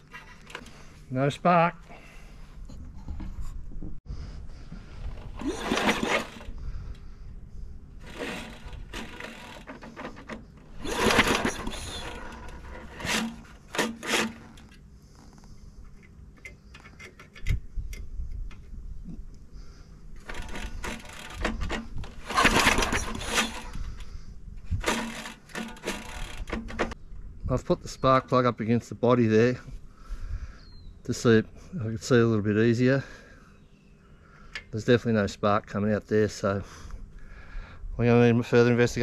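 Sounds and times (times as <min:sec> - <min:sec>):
recoil starter pull cranking engine: 0:05.0 - 0:07.1, 0:08.0 - 0:14.8, 0:20.2 - 0:27.0.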